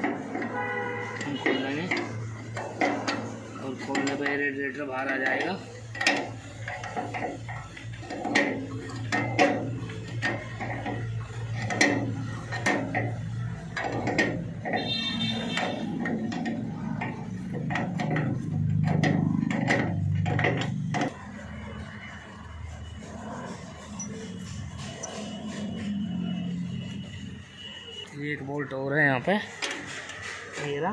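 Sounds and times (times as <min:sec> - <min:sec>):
spanner clicking on bolts: 0:00.0 - 0:21.8, 0:29.5 - 0:30.7.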